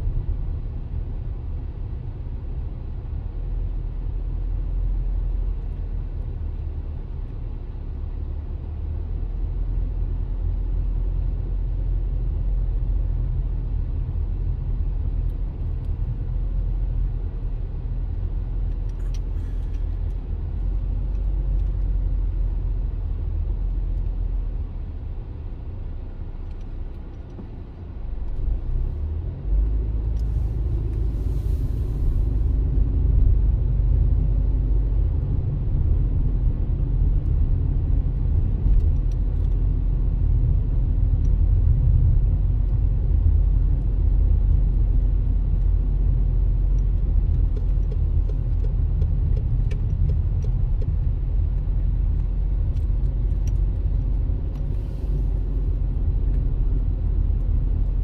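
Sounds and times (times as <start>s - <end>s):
vehicle driving on road: 0.0s - 58.0s.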